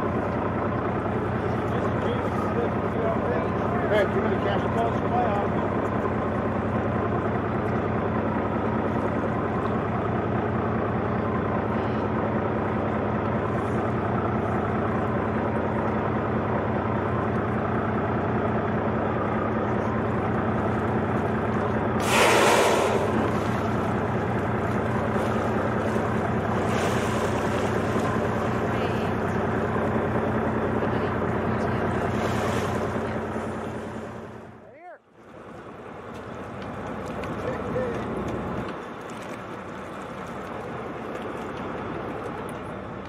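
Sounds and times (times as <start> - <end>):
boat engine running: 0.0 - 43.0
loud whoosh: 22.0 - 24.0.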